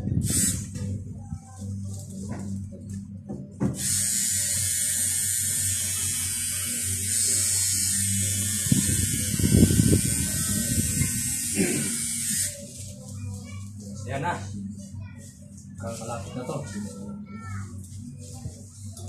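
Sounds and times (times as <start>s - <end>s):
tattoo machine buzzing: 0.2s - 0.8s, 3.8s - 12.8s.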